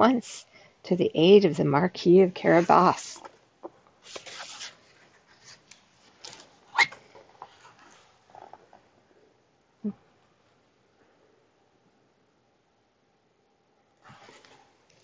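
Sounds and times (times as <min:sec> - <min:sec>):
book cover and pages clicking: 0:04.0 - 0:04.8
paper rustling: 0:04.0 - 0:08.6, 0:14.0 - 0:15.0.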